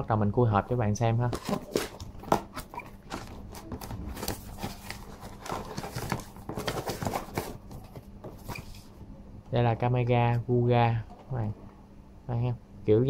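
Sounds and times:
cardboard and paper rustling: 1.3 - 8.9.

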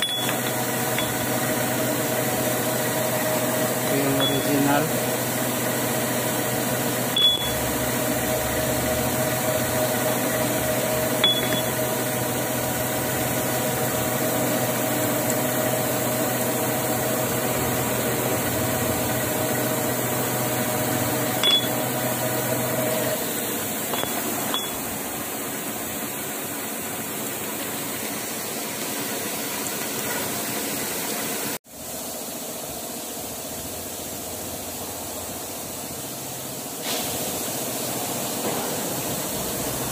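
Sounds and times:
metal lathe humming: 7.1 - 25.2.

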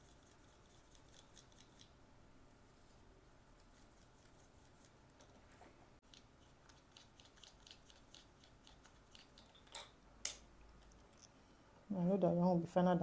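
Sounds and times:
paintbrushes dabbing and mixing paint: 0.0 - 9.7.

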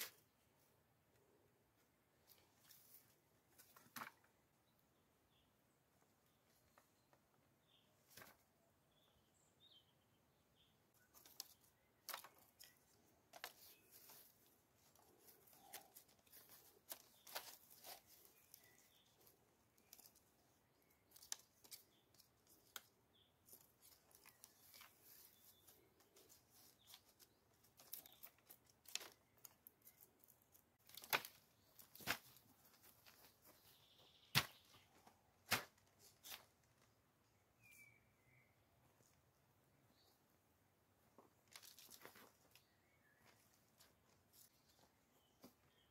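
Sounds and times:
soft rustling: 11.0 - 37.0.

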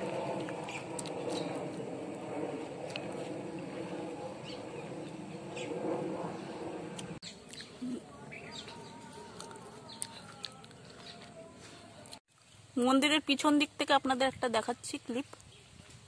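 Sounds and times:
steady rushing noise: 0.0 - 7.2
small birds chirping: 7.2 - 11.2.

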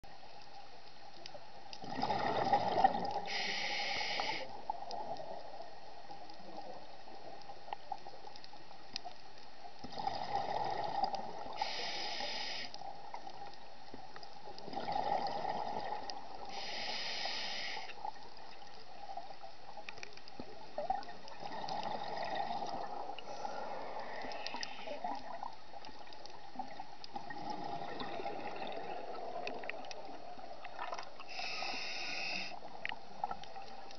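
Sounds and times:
exhaled bubbles underwater: 1.8 - 8.2, 9.8 - 12.0, 14.4 - 16.7, 20.3 - 33.9
regulator inhalation hiss: 3.3 - 4.6, 11.6 - 12.8, 16.5 - 18.0, 23.3 - 25.0, 31.3 - 32.6.

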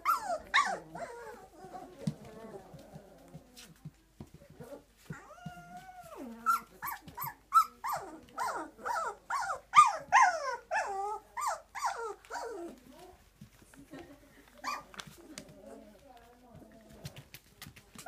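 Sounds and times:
puppies whining and yelping: 0.0 - 1.9, 5.1 - 12.8.

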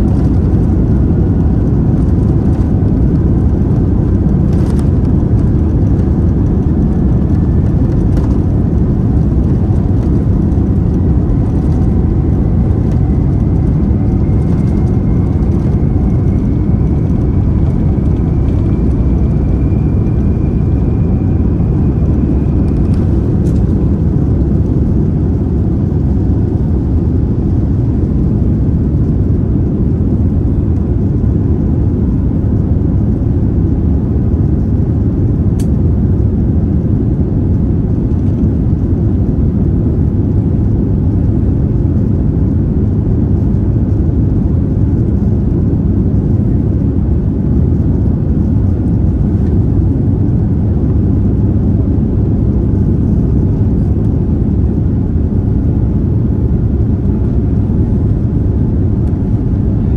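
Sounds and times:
jet engines rumbling: 0.0 - 59.9
faint rising whine: 3.8 - 28.7.

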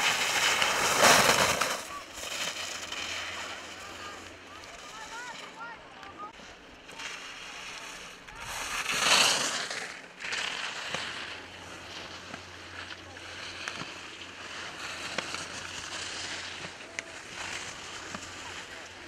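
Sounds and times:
water noise: 0.0 - 9.0.

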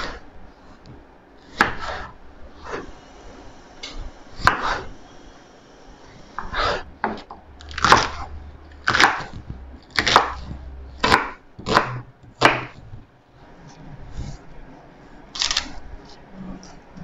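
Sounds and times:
knife chopping on wooden board: 1.5 - 2.1, 4.4 - 4.8, 6.4 - 12.8.

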